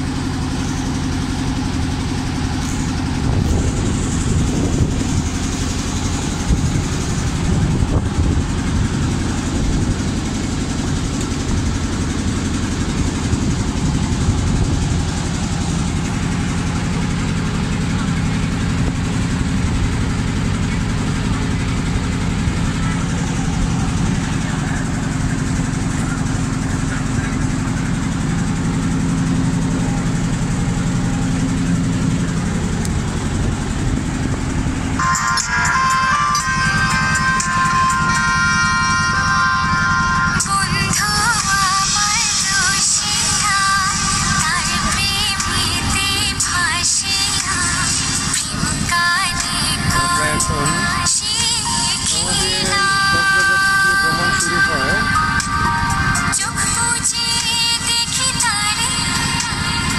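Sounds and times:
boat engine droning: 0.0 - 59.9
people talking: 21.4 - 28.2, 48.6 - 58.7.

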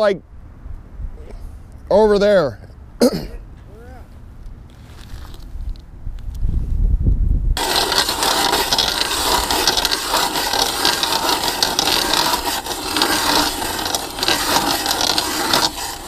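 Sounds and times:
ice auger scraping through ice: 7.6 - 16.0.

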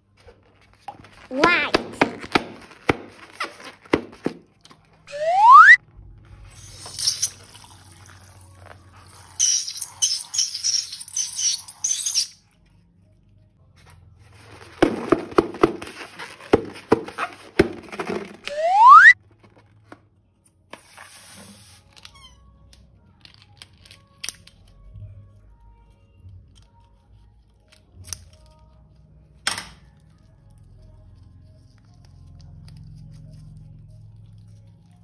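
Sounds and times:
rising squeal: 5.1 - 5.8
slime balloon crackling and squeaking: 6.4 - 7.6, 9.0 - 12.7.

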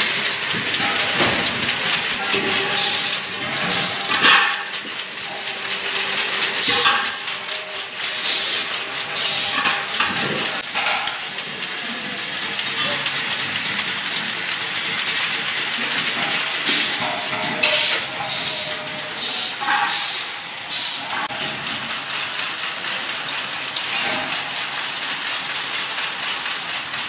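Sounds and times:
filling machine steady hiss: 11.6 - 21.1.

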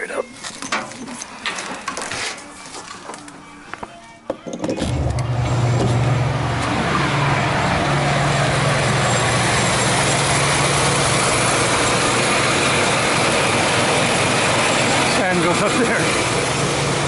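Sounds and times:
motor hum: 4.8 - 17.0.

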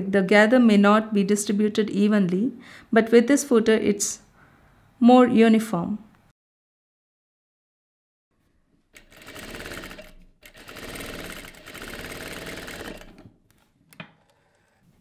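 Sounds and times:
sewing machine stitching: 9.0 - 13.4.

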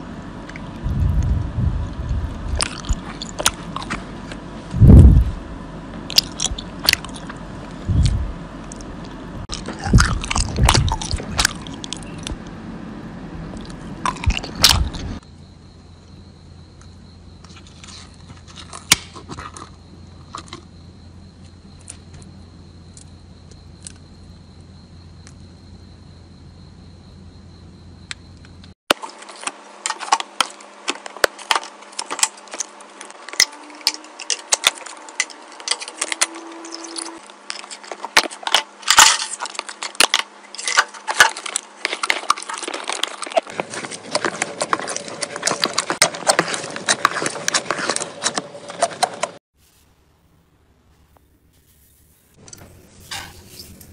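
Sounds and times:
faint high whine: 31.6 - 42.9, 49.6 - 53.9.

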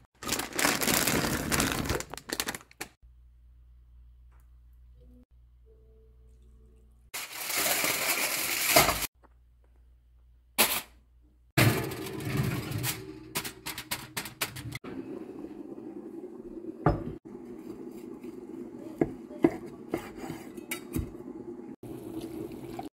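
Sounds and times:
foil crinkling: 0.0 - 3.0, 7.2 - 9.1.

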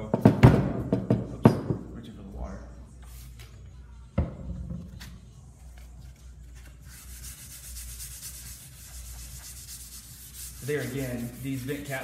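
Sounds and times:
sandpaper rubbing back and forth: 6.8 - 12.0.

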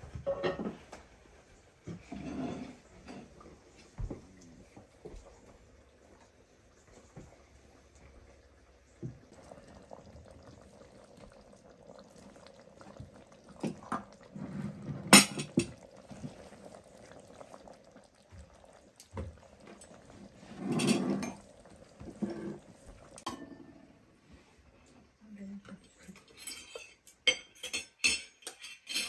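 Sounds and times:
liquid pouring: 3.1 - 23.8.

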